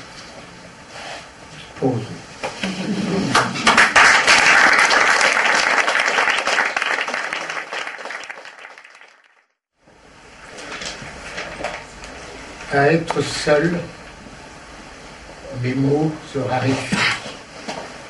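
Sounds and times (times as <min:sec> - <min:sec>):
audience applauding: 0:03.3 - 0:09.5.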